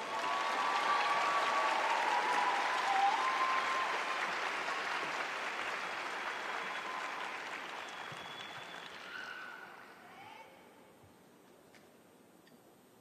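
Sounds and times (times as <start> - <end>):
faint cheers: 0.0 - 5.1, 6.1 - 10.2
audience applause: 0.0 - 9.9.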